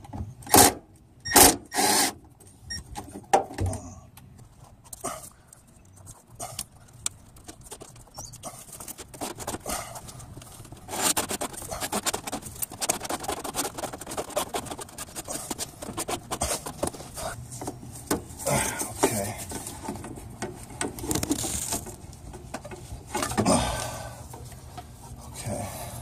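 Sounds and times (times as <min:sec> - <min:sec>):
metal pick scraping rubber hose: 0:05.9 - 0:23.5.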